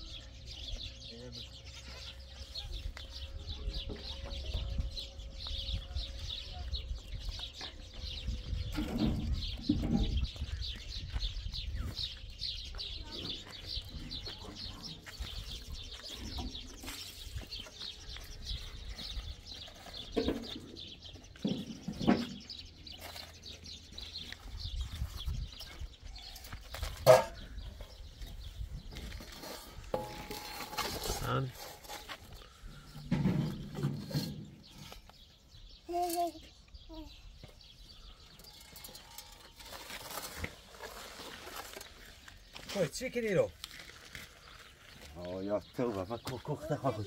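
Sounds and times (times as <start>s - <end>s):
small birds chirping: 0.0s - 47.0s
wind rumbling on microphone: 2.6s - 19.5s, 24.4s - 29.9s.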